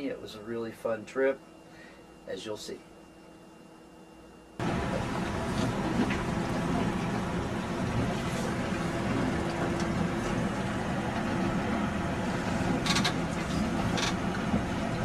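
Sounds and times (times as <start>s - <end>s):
boat motor humming: 4.6s - 15.0s.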